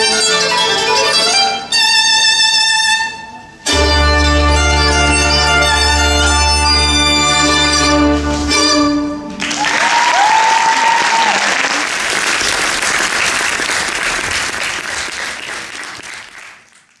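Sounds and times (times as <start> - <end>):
audience applause: 9.3 - 17.0
high cheer: 9.4 - 12.0.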